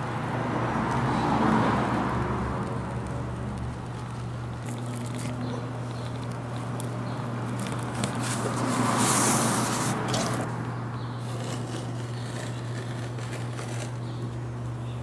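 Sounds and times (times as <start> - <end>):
blade scraping a sheet: 7.9 - 10.5, 11.2 - 14.1.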